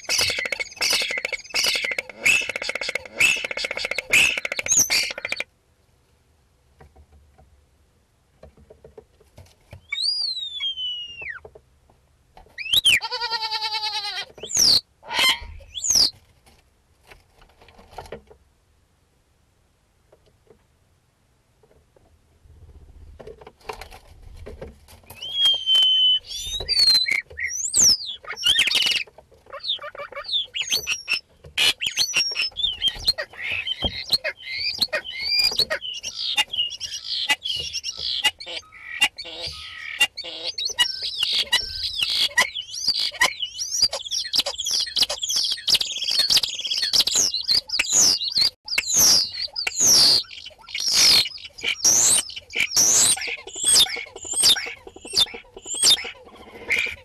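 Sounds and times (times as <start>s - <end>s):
starling singing: 0.0s - 5.4s, 25.1s - 57.0s.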